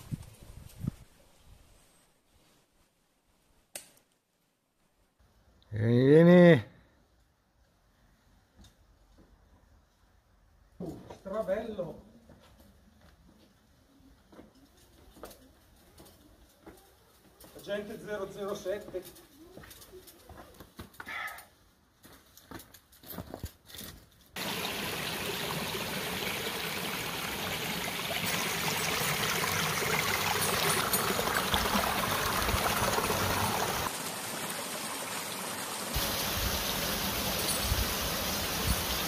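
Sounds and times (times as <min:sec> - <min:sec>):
stream trickling over stones: 0:24.4 - 0:39.0.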